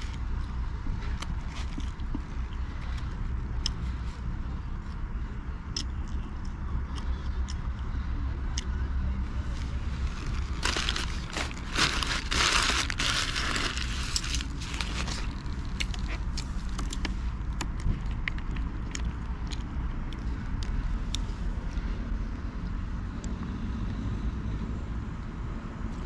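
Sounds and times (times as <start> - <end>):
low rumble: 0.0 - 26.0
paper wrapper crinkling: 10.0 - 16.8.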